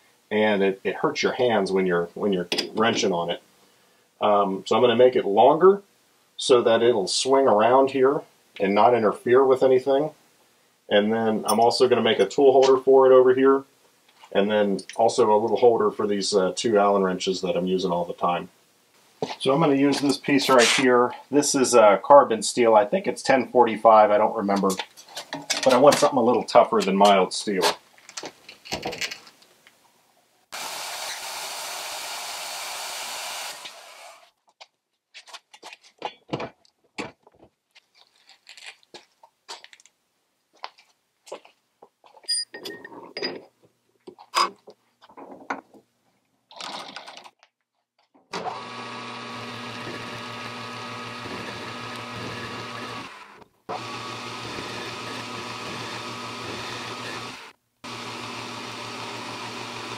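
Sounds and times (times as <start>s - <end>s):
band saw cutting steel: 30.6s - 34.2s, 48.4s - 59.9s
metal lathe motor hum: 48.4s - 59.9s.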